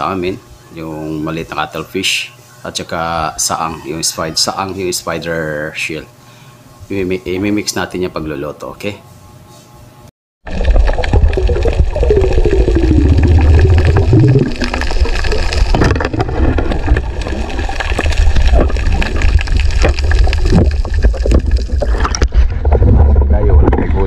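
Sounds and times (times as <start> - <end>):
underwater rushing and gurgling: 10.4 - 23.8
falling gurgling tone: 10.5 - 23.9
knocks and clicks: 18.0 - 23.0.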